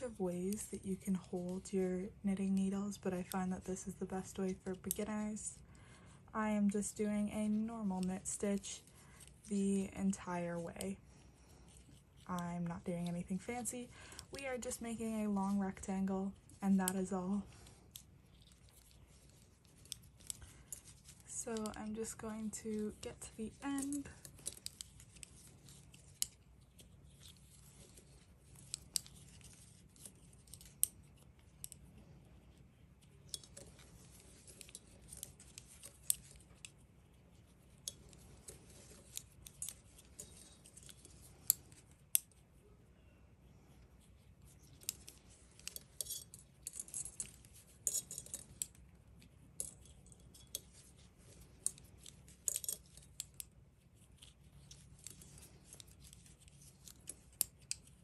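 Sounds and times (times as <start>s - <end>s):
metal knitting needles clicking: 17.8s - 31.8s, 33.0s - 36.9s, 37.8s - 42.4s, 44.7s - 53.6s, 54.2s - 58.0s.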